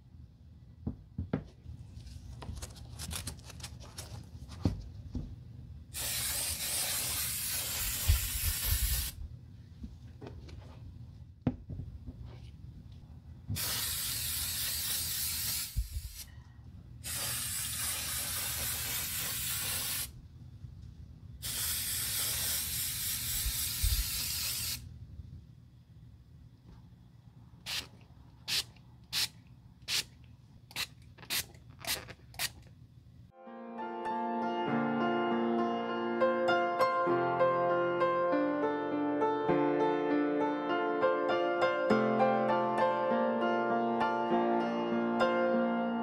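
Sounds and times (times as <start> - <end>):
spray hissing: 6.0 - 9.2, 13.6 - 16.3, 17.0 - 20.1, 21.4 - 24.8.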